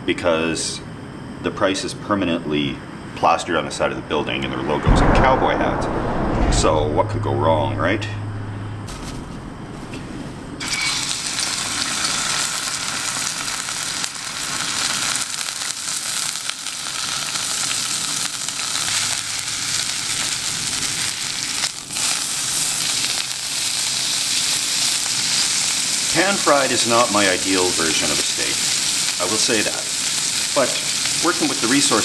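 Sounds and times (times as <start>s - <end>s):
steak sizzling in a frying pan: 10.6s - 32.0s.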